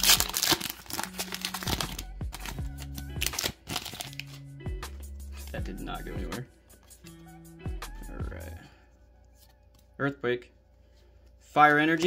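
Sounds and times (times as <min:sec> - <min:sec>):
foil wrapper crinkling: 0:00.0 - 0:04.4
trading cards handled: 0:00.0 - 0:04.5
background music with bass line: 0:00.0 - 0:08.7.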